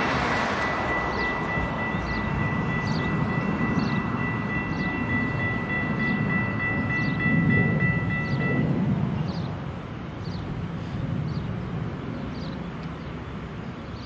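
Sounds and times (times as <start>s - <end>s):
steady high tones: 0.0s - 8.9s
train wheels rumbling: 0.0s - 13.8s.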